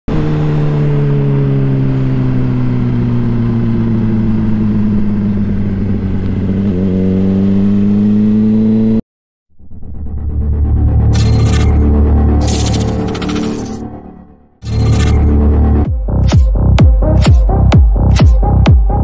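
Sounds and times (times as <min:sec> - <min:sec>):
motorcycle engine running: 0:00.1 - 0:09.0.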